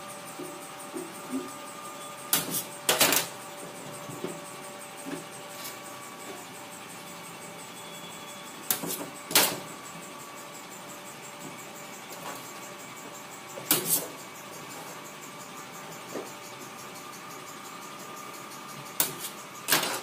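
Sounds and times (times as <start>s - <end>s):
machine humming: 0.0s - 20.0s.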